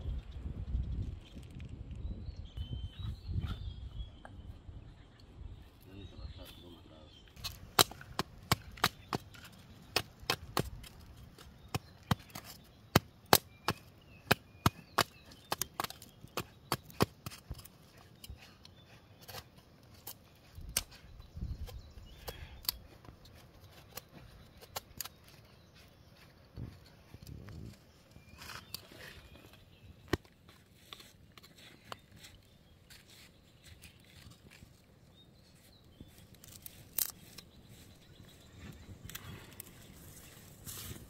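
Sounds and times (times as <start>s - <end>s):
chopping strikes on wood: 7.4s - 11.0s.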